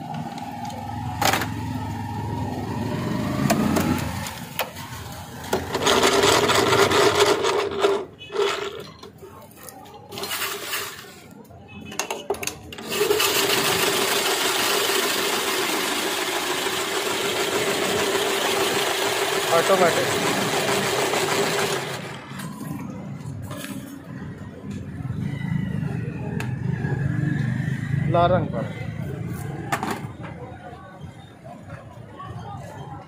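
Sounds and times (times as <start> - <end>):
ice shaving machine grinding: 5.6 - 8.7, 12.8 - 22.2.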